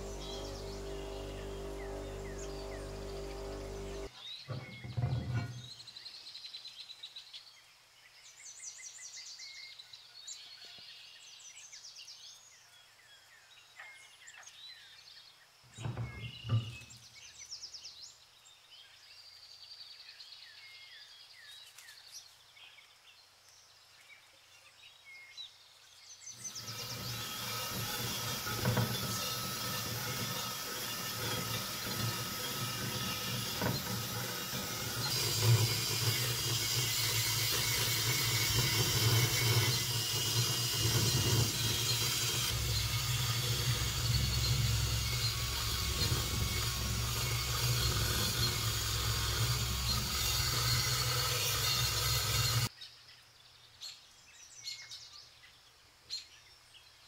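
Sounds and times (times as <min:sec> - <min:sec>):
drill motor hum: 0:00.0 - 0:04.1, 0:26.4 - 0:52.7
wire brush scratching metal: 0:00.0 - 0:04.1, 0:26.4 - 0:52.7.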